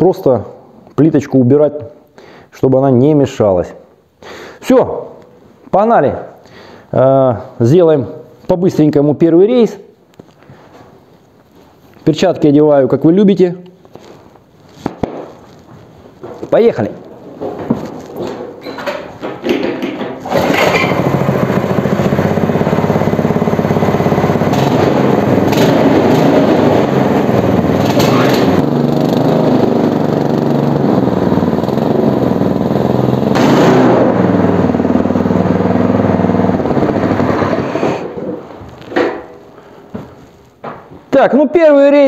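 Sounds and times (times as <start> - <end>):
small tractor engine running: 19.2 - 38.3.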